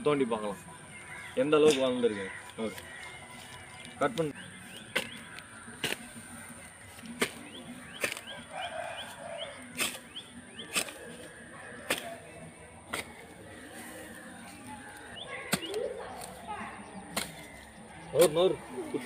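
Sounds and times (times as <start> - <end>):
hoe chopping into soil: 4.9 - 6.2, 7.1 - 8.6, 9.6 - 12.2, 17.1 - 17.6.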